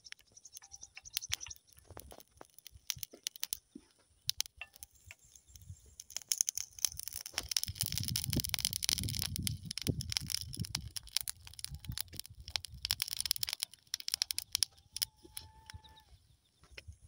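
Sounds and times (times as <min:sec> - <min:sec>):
burning grass crackling: 0:00.0 - 0:17.0.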